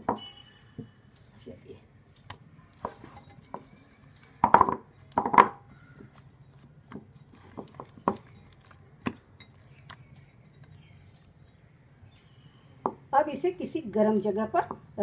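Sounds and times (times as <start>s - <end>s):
glass bowl clattering on wood: 2.8s - 3.7s.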